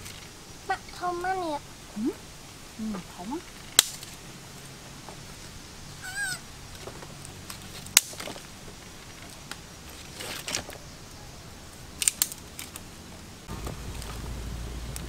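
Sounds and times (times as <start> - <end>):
cat meowing: 6.0 - 6.4.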